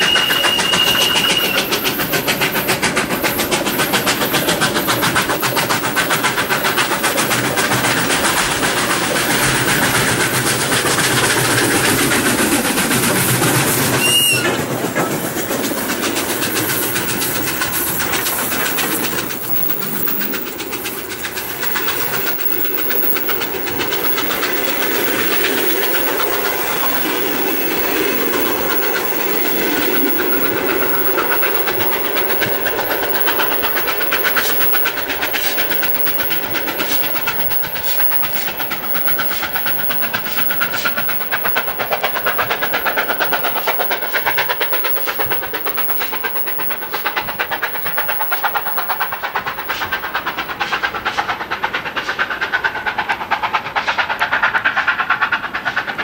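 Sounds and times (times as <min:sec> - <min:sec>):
steam locomotives passing: 0:00.0 - 0:56.0
train wheels clattering over rail joints: 0:00.0 - 0:56.0.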